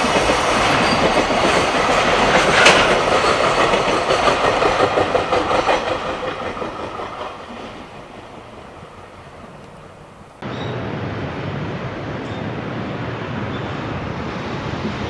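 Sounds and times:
train wheels rattling over rails: 0.0 - 10.7.

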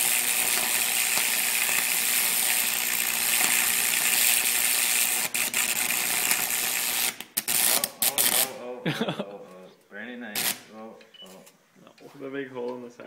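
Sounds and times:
electric arc sizzling and crackling: 0.0 - 8.6, 10.3 - 10.7.

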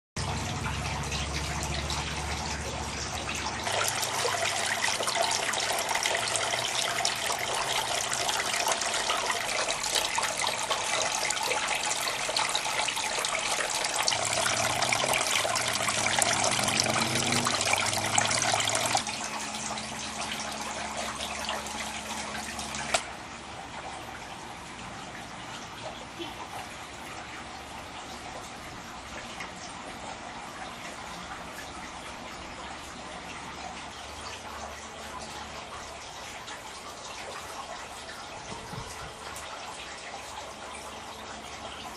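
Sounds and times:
fountain water splashing: 0.2 - 23.0.

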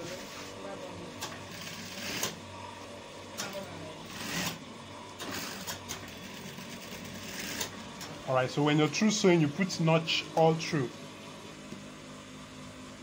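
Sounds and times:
sewing machine motor humming: 1.2 - 2.4, 3.4 - 4.6, 5.2 - 8.2
sewing machine stitching: 1.3 - 2.4, 3.5 - 4.6, 5.2 - 7.8.

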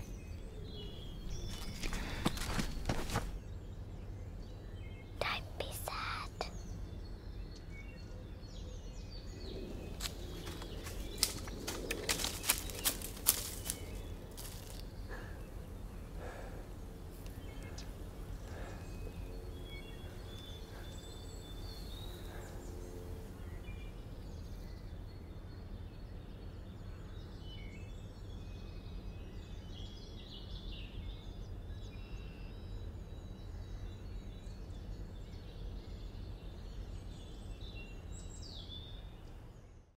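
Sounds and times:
small birds singing: 0.0 - 40.0
steady low rumble: 8.9 - 27.2.

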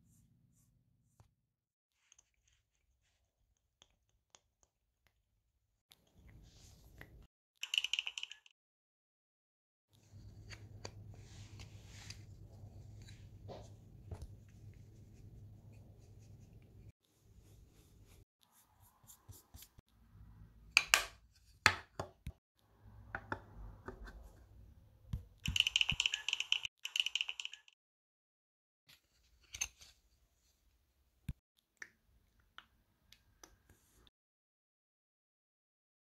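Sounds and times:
scratchy strokes: 14.5 - 19.8.

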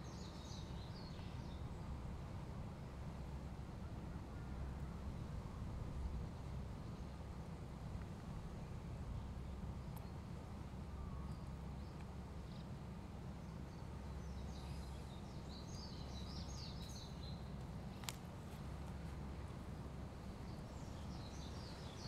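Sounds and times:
low background rumble: 0.0 - 22.0
small birds chirping: 13.4 - 19.0, 20.2 - 22.0.

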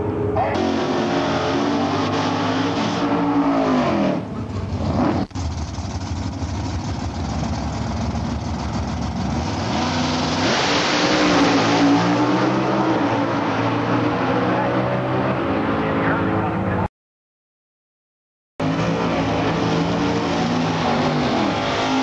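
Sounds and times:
drag car engines revving: 0.0 - 16.9, 18.6 - 22.0
rough low engine rumble: 4.2 - 9.6.

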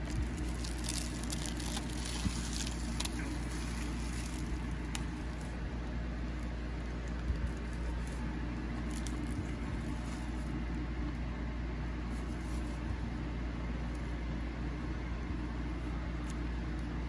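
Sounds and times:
plastic wrap crinkling: 0.0 - 10.8
low machinery hum: 0.0 - 17.0.

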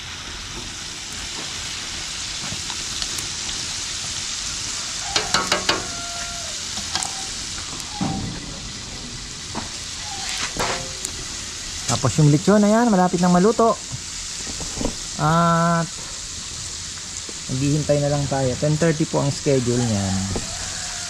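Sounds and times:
chicken deep-frying in oil: 0.0 - 21.0
metal tongs clinking wok: 5.0 - 6.2.

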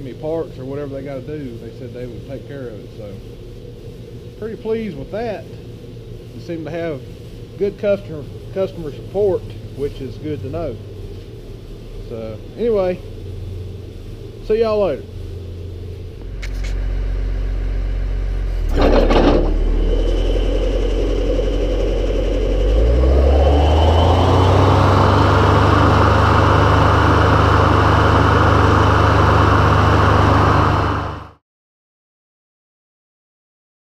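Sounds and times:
tractor engine running: 7.7 - 31.4
mower head spinning: 18.5 - 31.2.

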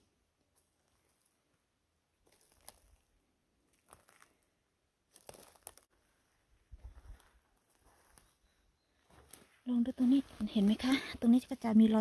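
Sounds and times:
dry leaf litter crunching: 2.2 - 3.1, 3.7 - 4.4, 5.1 - 5.9.

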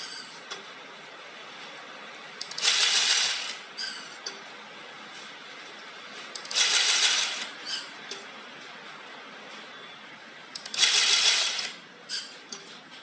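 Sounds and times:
taping machine whirring: 2.4 - 3.9, 6.4 - 7.8, 10.6 - 12.2.

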